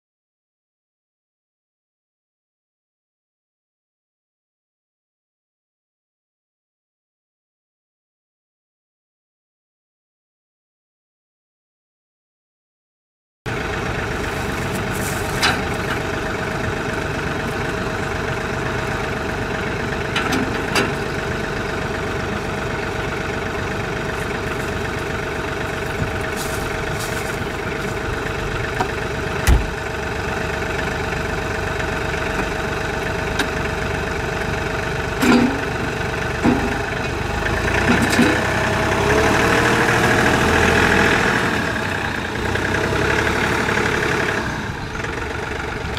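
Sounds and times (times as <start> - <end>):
tractor diesel engine idling: 13.5 - 45.9
metal clanks: 14.4 - 16.2, 20.0 - 21.3, 35.2 - 36.9.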